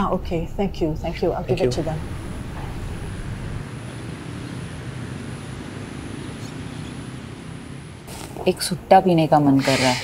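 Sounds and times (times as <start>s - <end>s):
city traffic: 0.0s - 10.0s.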